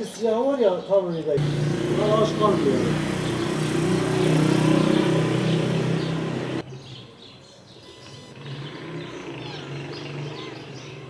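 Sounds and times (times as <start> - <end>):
quiet street background: 0.0 - 11.0
vehicle engine humming: 1.4 - 6.7, 7.8 - 11.0.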